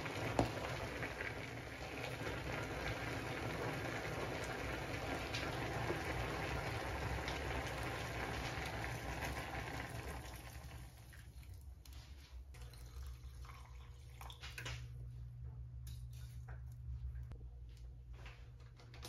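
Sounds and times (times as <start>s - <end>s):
low steady hum: 10.2s - 19.0s.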